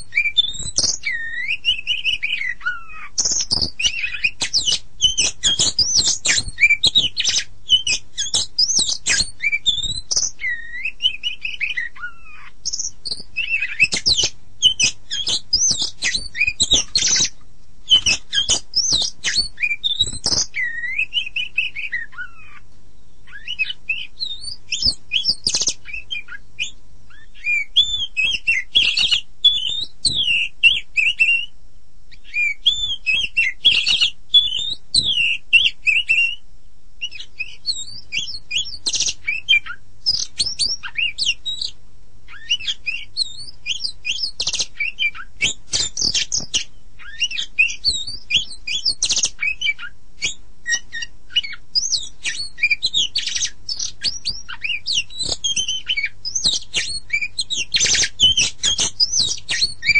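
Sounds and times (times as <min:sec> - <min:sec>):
bird singing varied song: 0:00.0 - 0:59.9.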